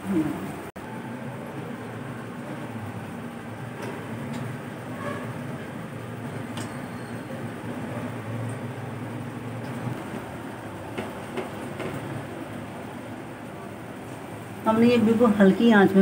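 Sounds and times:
low hum with faint hiss: 12.8s - 16.0s.

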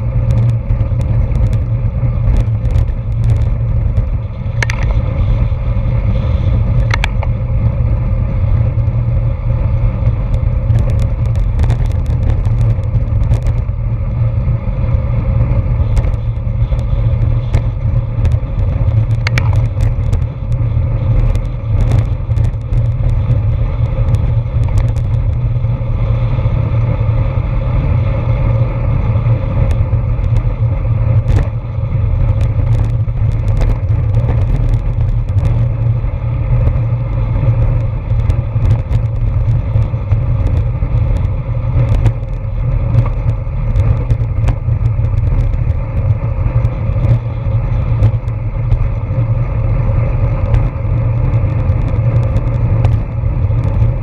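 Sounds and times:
wind rumbling on microphone: 0.0s - 54.0s
clicks and rattles: 0.3s - 5.0s, 6.8s - 7.4s, 15.8s - 20.6s.

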